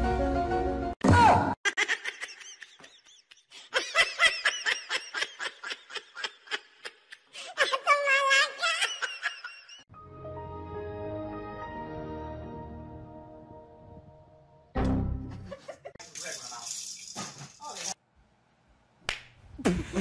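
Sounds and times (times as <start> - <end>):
background music: 0.0 - 1.0, 9.9 - 15.6
person laughing hard: 1.6 - 9.8.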